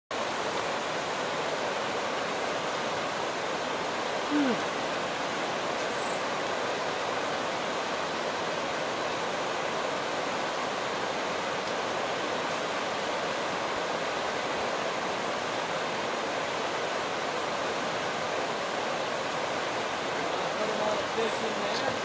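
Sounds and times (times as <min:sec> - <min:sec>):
white water rushing: 0:00.1 - 0:22.0
short falling call: 0:04.2 - 0:04.7.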